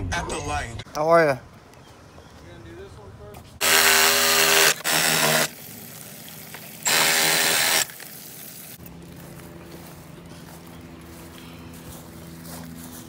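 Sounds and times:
motor whine with harsh rasp: 0:03.6 - 0:05.5, 0:06.8 - 0:07.9
power tool cutting plastic pipe: 0:03.6 - 0:05.5, 0:06.8 - 0:08.0.

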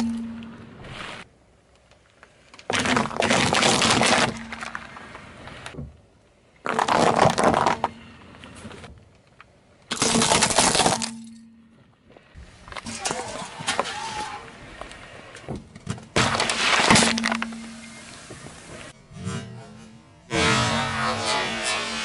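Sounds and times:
tyre crushing objects: 0:02.7 - 0:05.0, 0:06.6 - 0:08.0.

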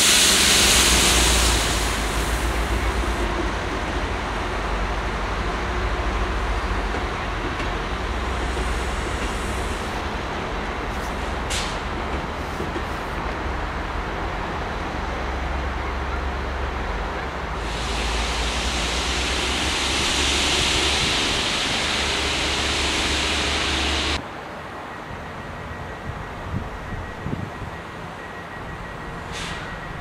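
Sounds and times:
loud steady hiss: 0:00.0 - 0:03.3, 0:17.6 - 0:24.2
diesel train engine rumble: 0:00.0 - 0:30.0.

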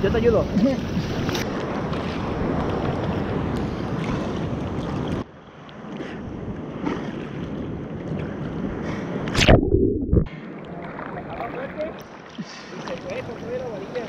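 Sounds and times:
surf sloshing and splashing: 0:00.0 - 0:14.0
sharp splash: 0:09.3 - 0:10.3.

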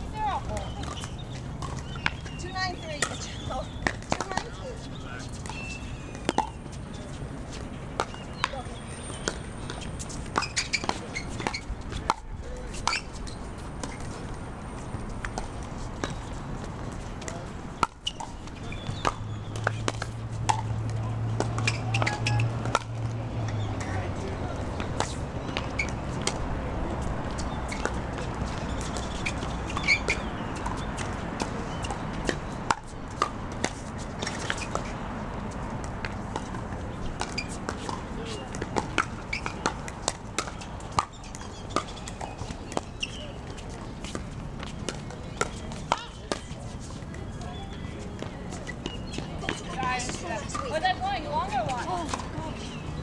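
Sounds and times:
ball bouncing on hard court: 0:00.2 - 0:04.6, 0:07.5 - 0:14.2, 0:15.2 - 0:34.9, 0:35.5 - 0:46.6
paddles hitting plastic ball: 0:03.8 - 0:04.6, 0:15.2 - 0:24.0.

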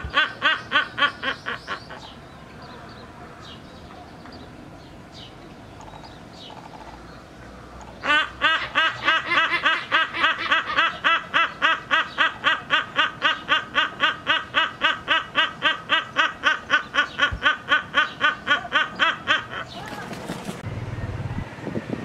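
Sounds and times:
hornbill laugh-like calls: 0:00.0 - 0:02.2, 0:08.0 - 0:20.3.

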